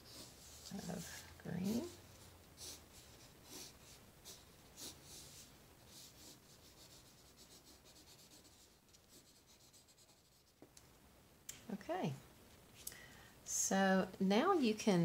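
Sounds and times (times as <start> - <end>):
pencil scratching on paper: 0.0 - 10.6.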